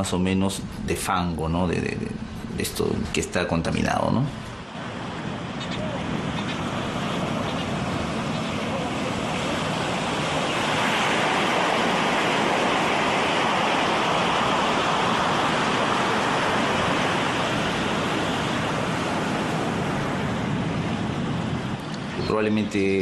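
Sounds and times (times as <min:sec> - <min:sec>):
rushing water: 0:04.6 - 0:23.0.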